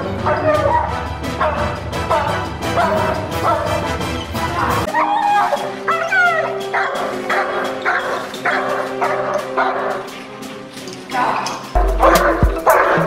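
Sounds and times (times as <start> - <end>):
background music with held notes: 0.0 - 13.0
dog barking and yipping: 0.2 - 4.0, 4.8 - 10.3, 11.9 - 13.0.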